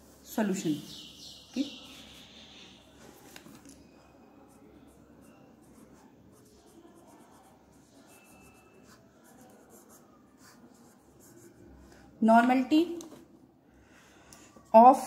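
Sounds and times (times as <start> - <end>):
pen scratching on paper: 4.4 - 11.8.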